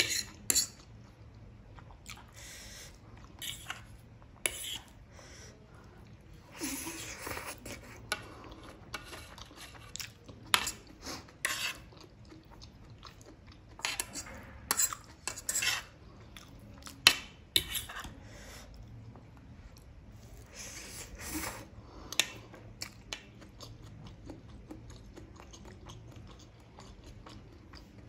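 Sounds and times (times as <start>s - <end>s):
metal fork scraping a plate: 0.0s - 0.8s, 11.4s - 11.9s, 13.8s - 15.9s.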